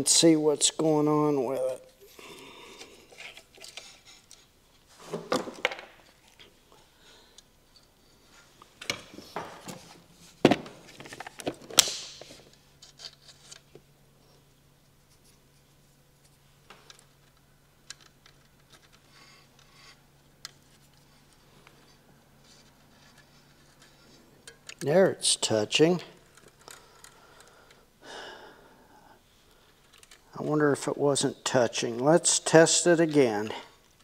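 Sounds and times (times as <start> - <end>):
metal parts clicking and scraping: 26.2 - 27.2, 29.7 - 30.2.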